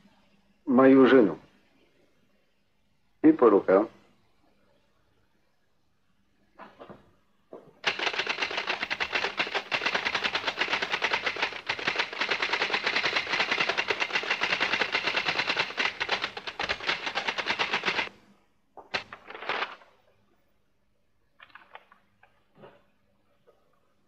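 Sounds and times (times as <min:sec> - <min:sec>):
manual typewriter typing fast: 0:07.8 - 0:18.1, 0:18.9 - 0:19.8.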